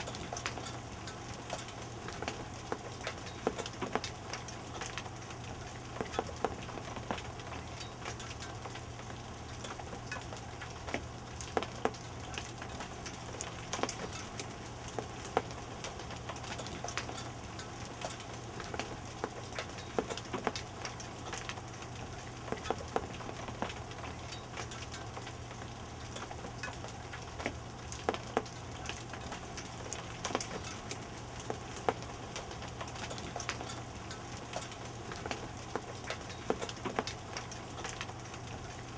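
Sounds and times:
hail and rain hissing: 0.0 - 38.9
hailstones ticking on surfaces: 0.0 - 38.9.

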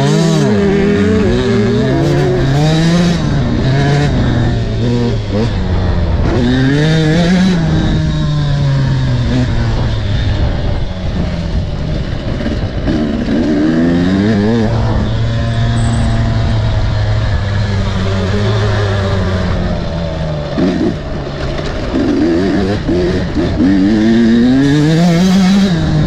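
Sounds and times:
motorcycle engine revving: 0.0 - 26.0.

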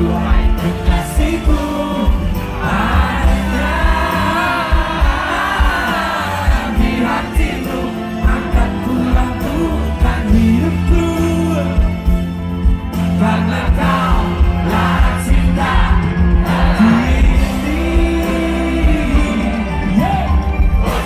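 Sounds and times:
rock band playing: 0.0 - 21.0.

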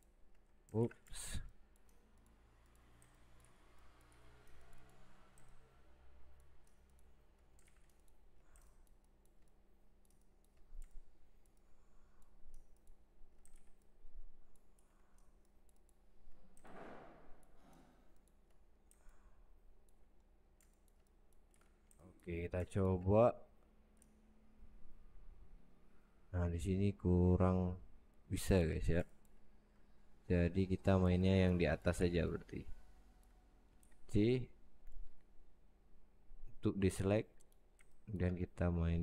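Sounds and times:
mouse and keyboard clicks: 0.0 - 24.2
low electrical hum: 0.0 - 39.0.

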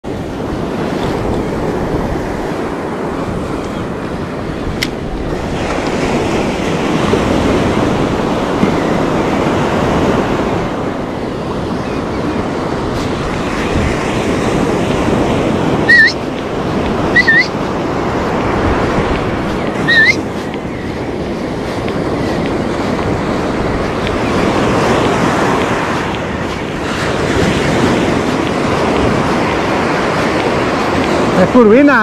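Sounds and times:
ocean surf breaking: 0.0 - 32.0
wind buffeting microphone: 0.0 - 32.0
high rising chirps: 15.9 - 16.2, 17.2 - 17.5, 19.9 - 20.2.

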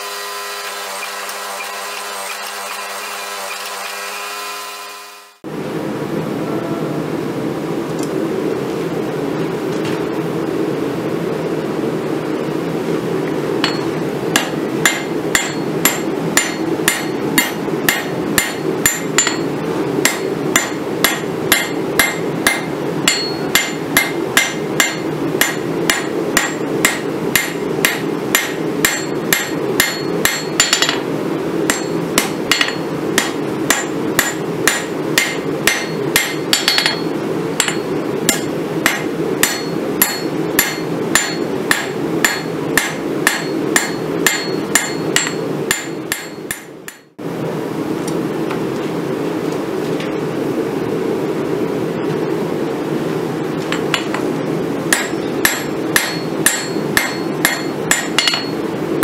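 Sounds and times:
hammer ringing on anvil: 13.6 - 31.0, 31.7 - 47.1, 54.9 - 58.6.

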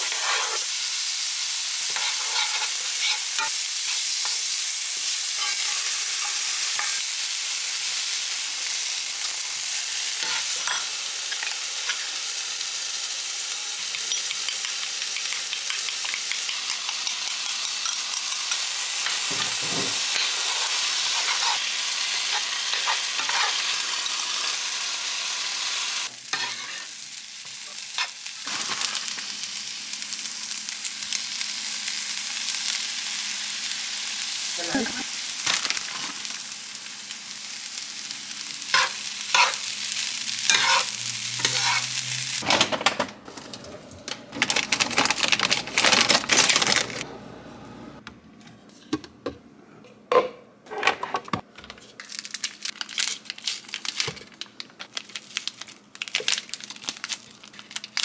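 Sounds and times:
food sizzling in frying pan: 0.0 - 42.4.

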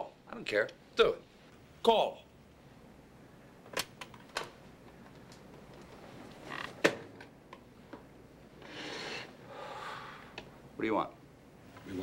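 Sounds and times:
phone scraping across table: 8.6 - 9.3.

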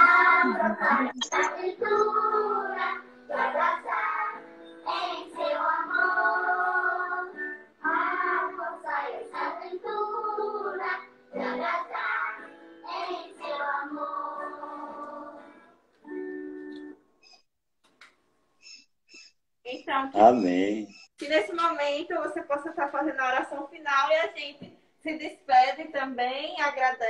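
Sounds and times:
children singing a hymn: 0.0 - 15.4.

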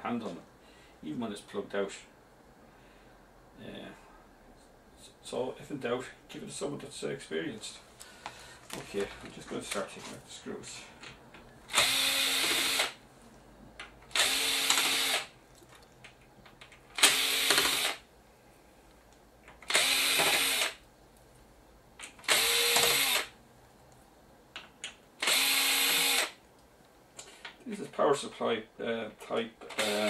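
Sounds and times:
cordless screwdriver whirring: 11.7 - 13.0, 14.1 - 15.3, 17.0 - 18.0, 19.7 - 20.8, 22.2 - 23.3, 25.2 - 26.4.

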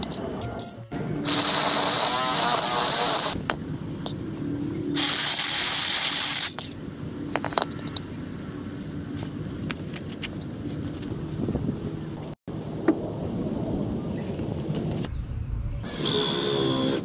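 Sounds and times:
cordless drill boring into wood: 1.3 - 3.4.

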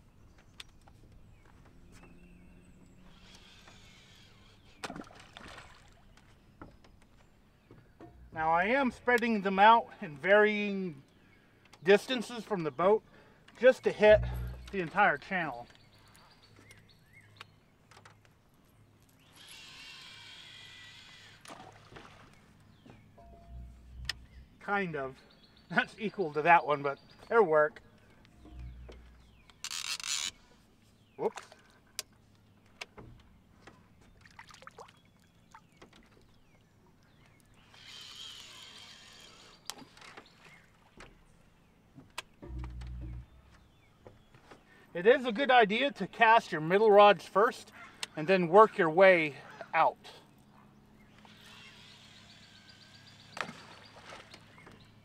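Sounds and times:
fishing reel whirring: 3.1 - 4.5, 19.3 - 21.4, 29.6 - 30.5, 37.7 - 39.6, 51.2 - 53.2
fishing reels clicking and knocking: 28.5 - 30.4
fishing reel clicks: 29.5 - 30.4.

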